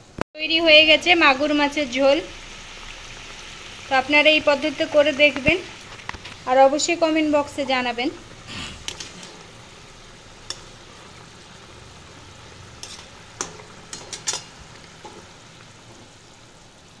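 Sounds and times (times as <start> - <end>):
curry bubbling and sizzling: 0.5 - 17.0
metal spatula scraping pan: 12.8 - 16.1.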